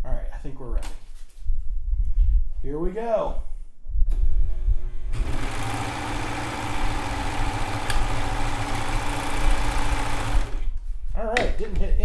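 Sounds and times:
serger machine running: 4.6 - 10.8.

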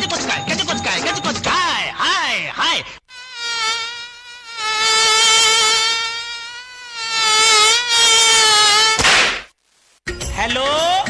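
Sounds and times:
long buzzy high note: 3.1 - 9.0.

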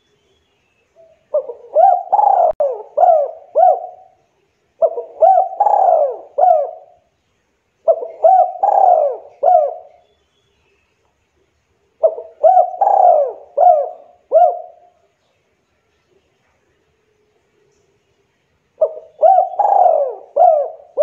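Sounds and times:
dove cooing: 1.0 - 4.2, 4.8 - 7.1, 7.8 - 10.0, 12.0 - 15.1, 18.8 - 21.0.

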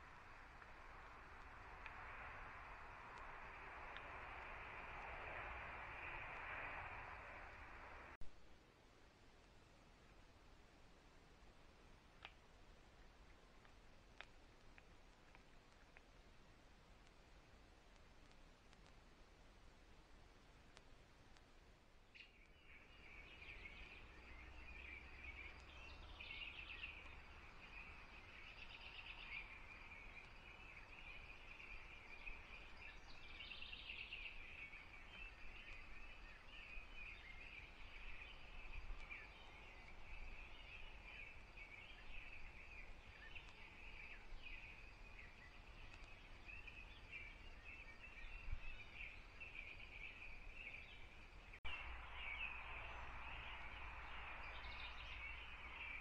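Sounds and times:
microphone hiss: 0.0 - 56.0
songbirds chirping: 0.0 - 56.0.

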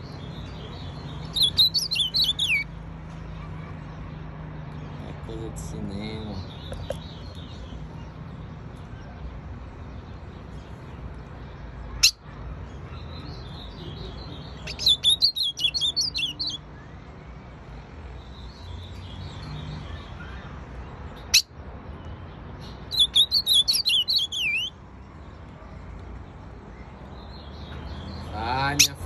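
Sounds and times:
bird singing high warbled notes: 1.1 - 2.7, 13.2 - 17.0, 22.7 - 24.8.

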